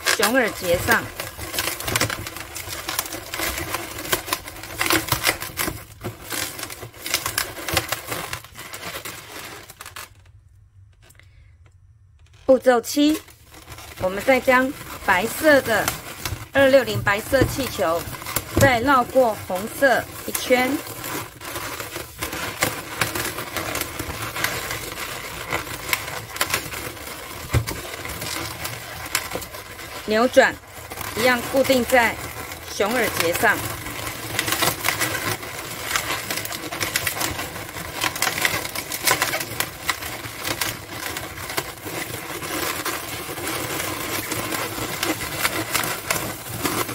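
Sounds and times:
balloons squeaking and rubbing: 0.0 - 10.3, 12.2 - 46.9.

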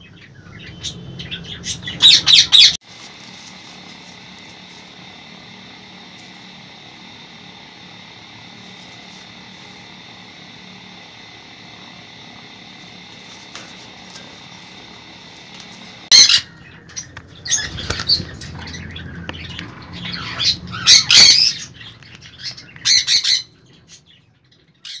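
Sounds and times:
steady background hum: 0.0 - 25.0
parrots screeching: 0.6 - 2.8, 16.0 - 23.6.

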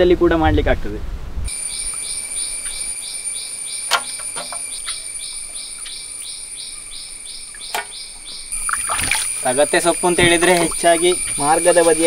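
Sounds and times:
insects calling in pulses: 1.5 - 12.0.

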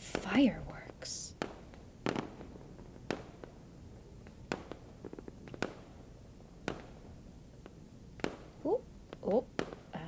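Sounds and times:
fireworks pops: 0.0 - 0.5, 1.4 - 3.6, 4.2 - 6.0, 6.6 - 10.0.

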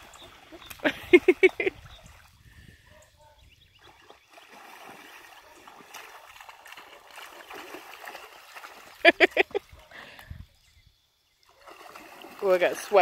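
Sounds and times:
water splashing: 0.0 - 2.6, 3.8 - 10.2, 11.4 - 13.0.

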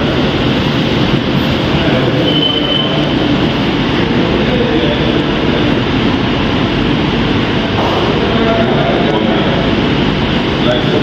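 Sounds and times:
loud rushing background noise: 0.0 - 11.0.

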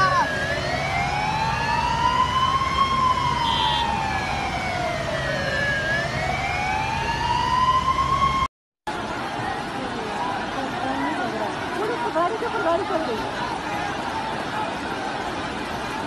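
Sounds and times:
emergency siren wailing: 0.0 - 8.5.

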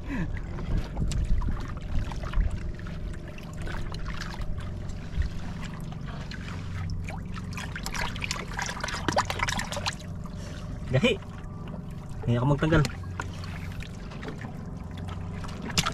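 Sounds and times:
low steady rumble: 0.0 - 15.9
water lapping against boat hull: 0.0 - 15.9
small splashes: 0.7 - 15.9.

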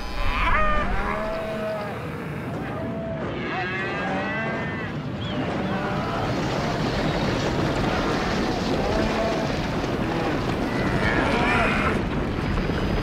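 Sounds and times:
cattle mooing: 0.0 - 6.5.

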